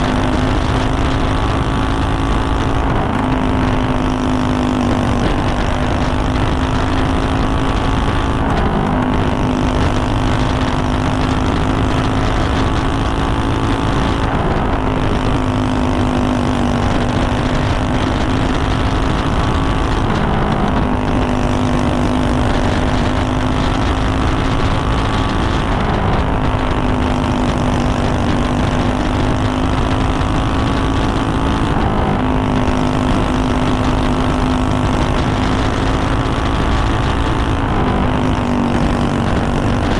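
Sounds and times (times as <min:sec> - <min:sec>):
kart engine revving high: 0:00.0 - 0:39.9
steady rushing noise: 0:00.0 - 0:39.9.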